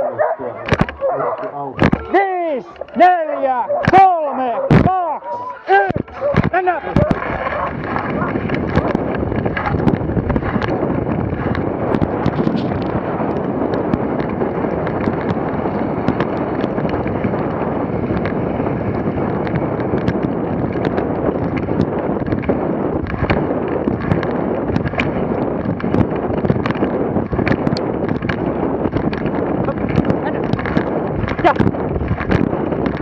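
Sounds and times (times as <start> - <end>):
sled runners scraping over snow: 0.0 - 33.0.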